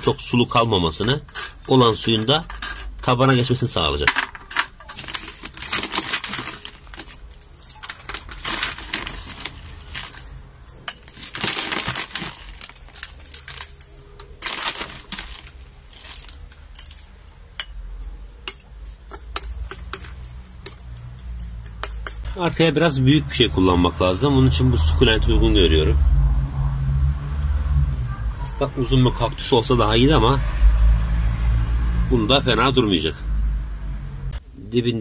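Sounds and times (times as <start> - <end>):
rocks clattering against glass: 4.1 - 17.0.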